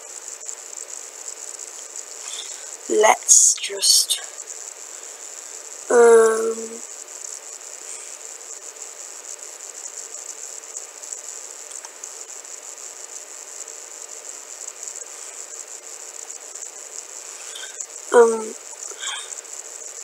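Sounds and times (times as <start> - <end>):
background hiss with high whine: 0.0 - 20.0
faint low hum: 0.0 - 20.0
person humming: 5.9 - 6.8, 17.4 - 19.3
faint click: 11.7 - 12.0.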